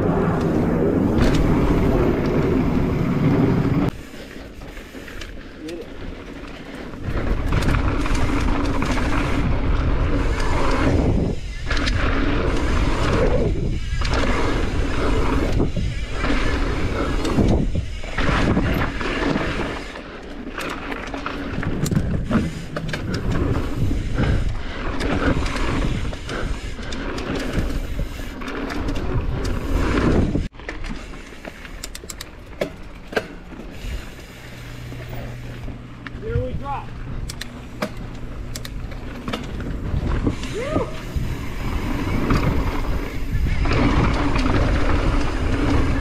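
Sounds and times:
bike frame rattles: 0:00.0 - 0:46.0
bike tyre noise on dirt: 0:00.0 - 0:46.0
wind rushing over microphone: 0:07.0 - 0:19.8, 0:21.5 - 0:30.6, 0:39.5 - 0:46.0.

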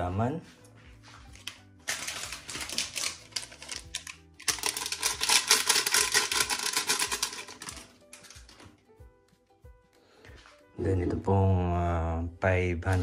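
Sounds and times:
powder pattering into metal pot: 0:01.9 - 0:08.6.

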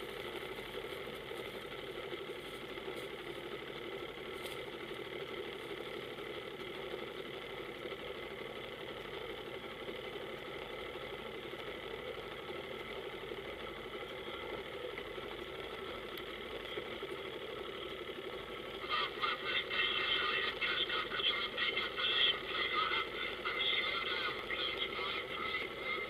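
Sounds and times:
boat engine idling: 0:00.0 - 0:26.0
tinny marine radio voice: 0:18.8 - 0:26.0.

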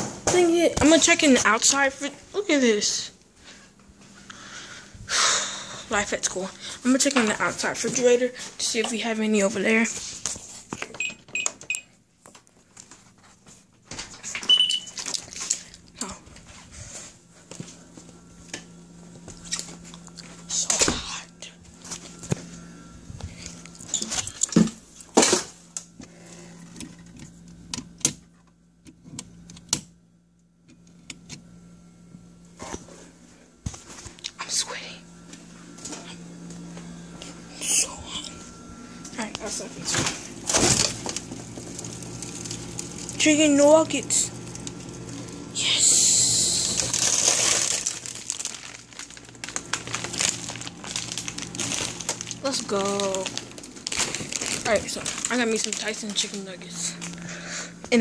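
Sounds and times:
steady low hum: 0:00.0 - 0:58.0
plastic bag crinkling: 0:14.8 - 0:15.9, 0:39.9 - 0:45.5, 0:46.6 - 0:57.3
things being handled: 0:23.2 - 0:25.5, 0:46.8 - 0:57.3.

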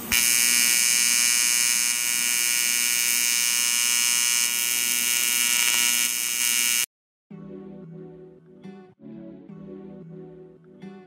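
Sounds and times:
welding arc buzzing: 0:00.0 - 0:06.9.

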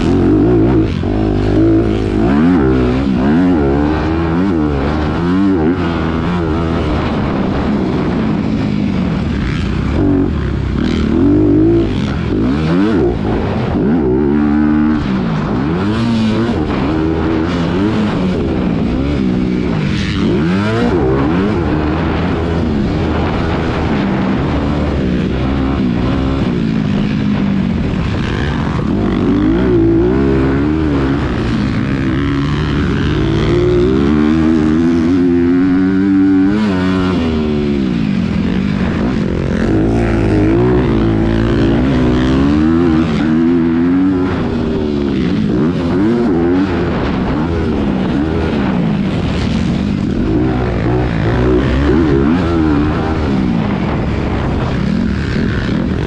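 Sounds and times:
dirt noise: 0:00.0 - 0:56.0
motocross bike engine revving: 0:00.0 - 0:56.0.

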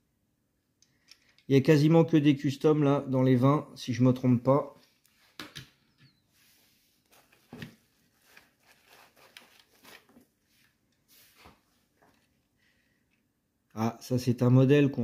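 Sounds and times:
bubble wrap rustling: 0:07.0 - 0:12.3.

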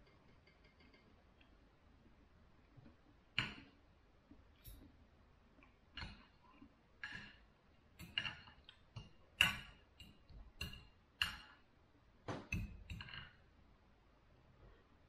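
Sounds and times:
cutlery scraping on plate: 0:08.0 - 0:08.6, 0:12.5 - 0:13.4.

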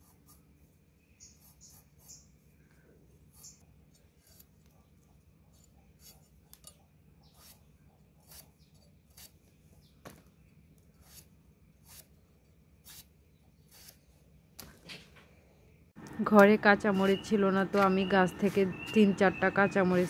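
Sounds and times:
potato scraping on blade: 0:03.3 - 0:04.6, 0:05.5 - 0:06.6, 0:07.2 - 0:09.4, 0:11.0 - 0:12.2, 0:12.8 - 0:14.1, 0:16.8 - 0:20.0.

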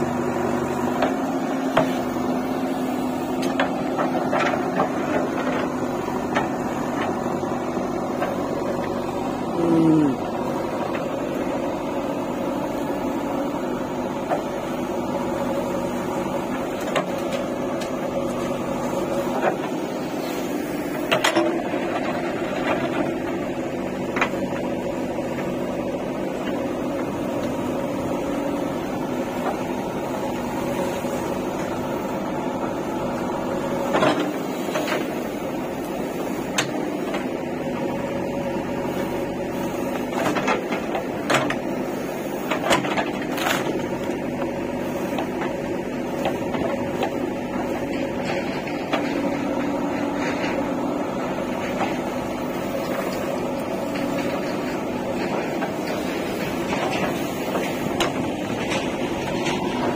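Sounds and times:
diesel engine running: 0:00.0 - 0:59.9.

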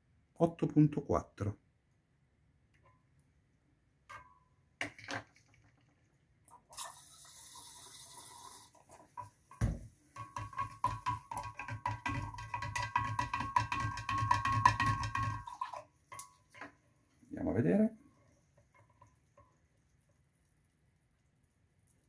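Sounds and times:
stirrer clinking against glass jar: 0:10.2 - 0:16.7.

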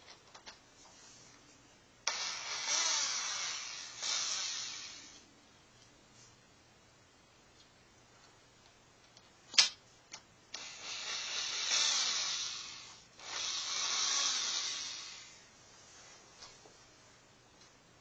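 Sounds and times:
electric drill running: 0:02.1 - 0:05.2, 0:10.6 - 0:15.4
sharp click: 0:09.5 - 0:10.2.

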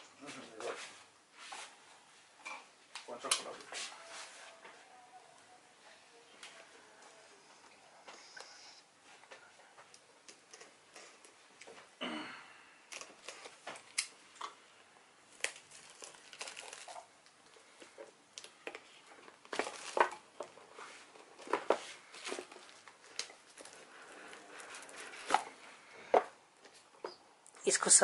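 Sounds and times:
plastic shrink-wrap crackling: 0:12.9 - 0:14.2, 0:15.3 - 0:25.9.

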